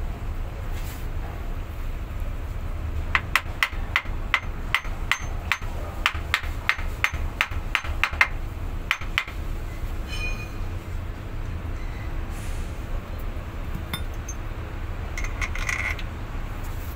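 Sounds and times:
hammer striking metal: 3.2s - 9.4s, 13.8s - 14.4s.

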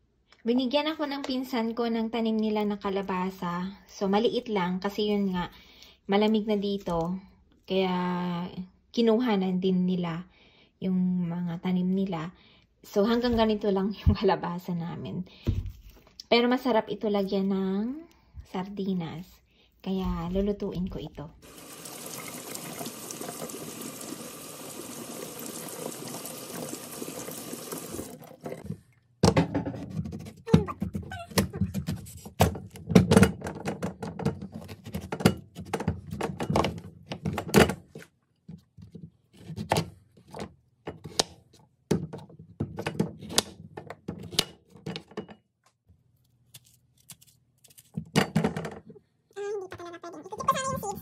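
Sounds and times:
kitchen tap running: 21.4s - 28.6s.

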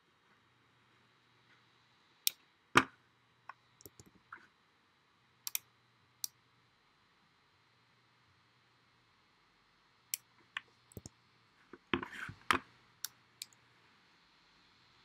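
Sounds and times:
mouse and keyboard clicks: 3.8s - 4.2s, 10.9s - 11.1s.

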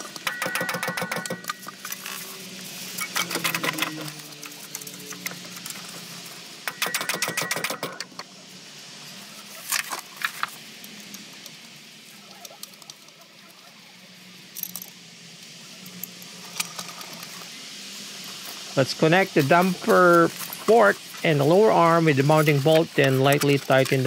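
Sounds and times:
socket ratchet clicking: 0.2s - 1.6s.

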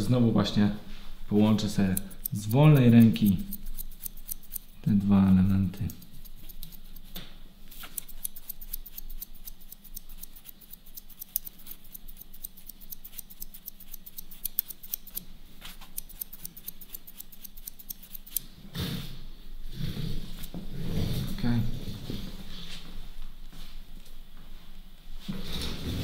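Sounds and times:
scissors snipping hair: 1.5s - 7.1s, 7.7s - 18.5s.

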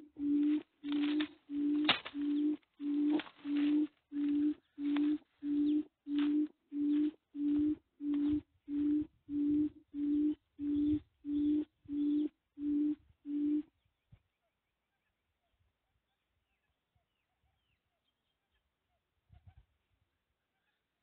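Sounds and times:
deep hooting bird call from speaker: 0.0s - 13.7s.

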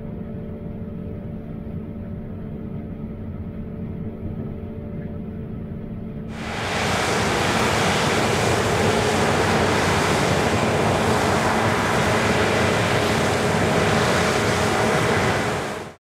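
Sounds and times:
faint engine hum: 0.0s - 16.0s
combine harvester roar: 6.3s - 16.0s.

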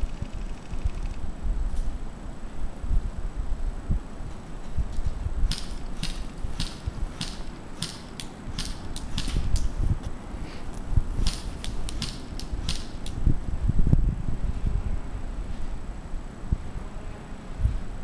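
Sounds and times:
wind rumble on microphone: 0.0s - 18.0s
airsoft rifle shots clicking: 5.5s - 9.8s, 11.2s - 13.2s.

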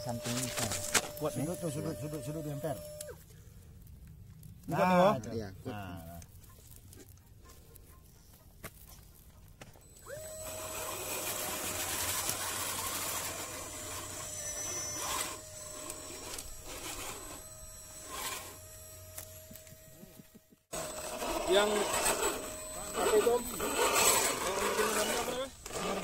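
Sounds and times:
electric motor whining: 0.0s - 3.3s, 9.8s - 26.0s.

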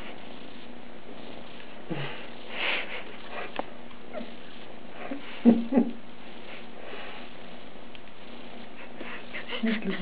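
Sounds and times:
breathy noise: 1.2s - 5.4s.

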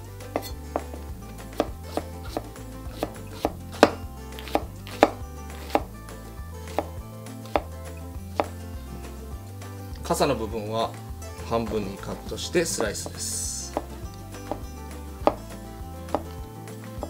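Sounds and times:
knife chopping on cutting board: 0.3s - 6.0s, 6.7s - 7.7s, 8.3s - 8.6s, 13.0s - 16.4s.

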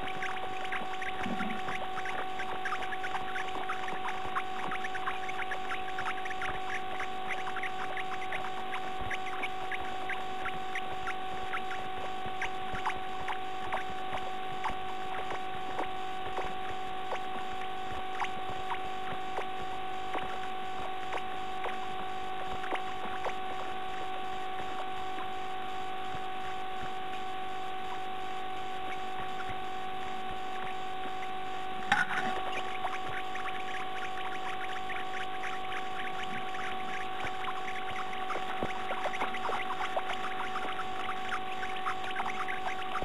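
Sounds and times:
nestlings cheeping: 0.0s - 16.6s, 31.9s - 43.0s
electrical hum: 0.0s - 43.0s.

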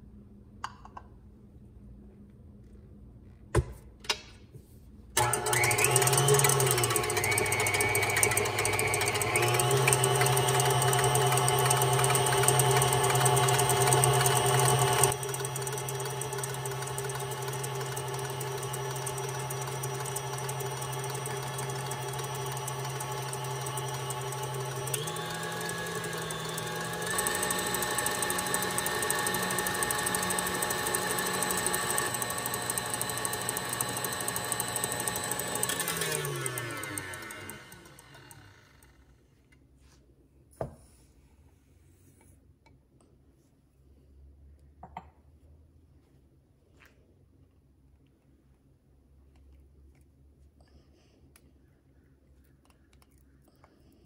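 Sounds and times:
stand mixer motor running: 5.2s - 39.1s
wire whisk beating egg whites: 5.9s - 38.4s.

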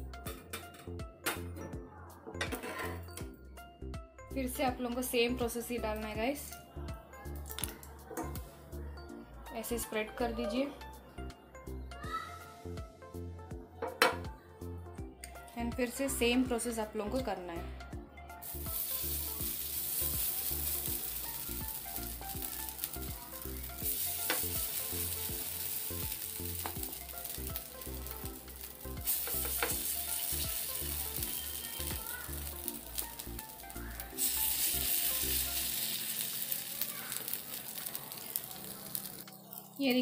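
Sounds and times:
batter sizzling in oil: 18.4s - 40.0s.

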